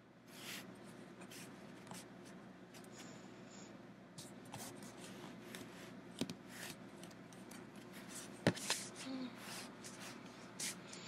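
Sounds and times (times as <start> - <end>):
tablet rustling against bedding: 4.2 - 10.8.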